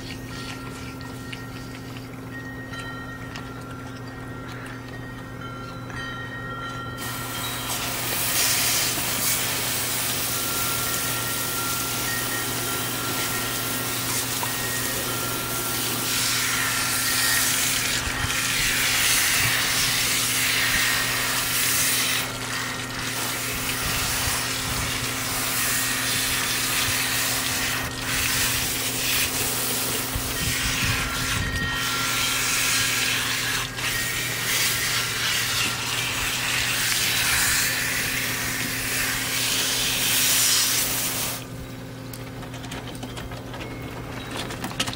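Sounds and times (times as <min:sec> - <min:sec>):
hose water spraying: 0:07.0 - 0:41.6.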